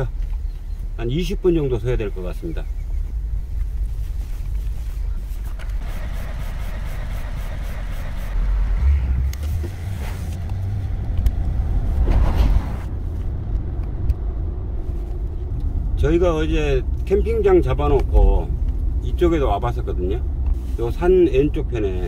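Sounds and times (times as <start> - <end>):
engine and tyre rumble in cabin: 0.0 - 22.0.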